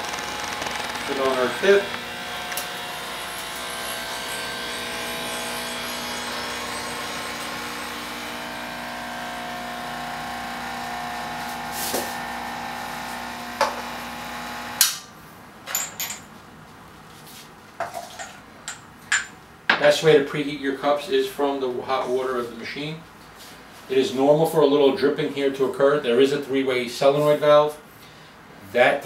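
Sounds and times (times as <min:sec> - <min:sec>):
espresso machine pump humming: 0:00.0 - 0:14.9
cups clicking and knocking: 0:17.8 - 0:19.8.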